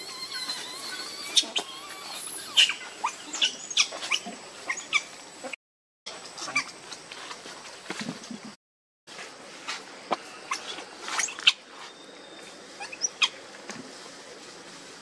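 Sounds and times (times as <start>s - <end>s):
macaques squeaking: 0.0s - 5.6s, 6.4s - 7.0s, 10.3s - 11.7s, 12.8s - 13.4s.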